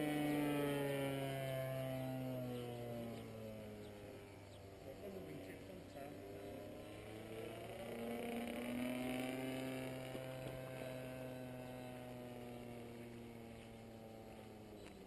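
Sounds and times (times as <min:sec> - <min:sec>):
model plane engine droning: 0:00.0 - 0:15.0.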